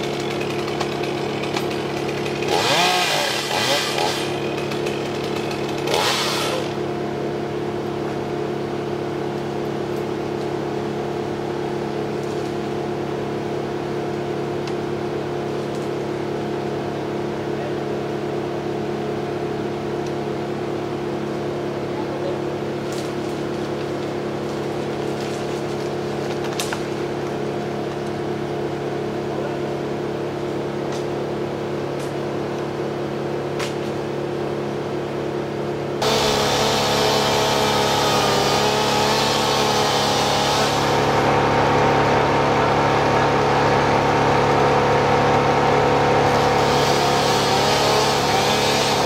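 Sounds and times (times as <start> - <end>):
chainsaw cutting wood: 0.0 - 6.9, 22.8 - 28.6, 36.0 - 49.0
engine drone: 0.0 - 49.0.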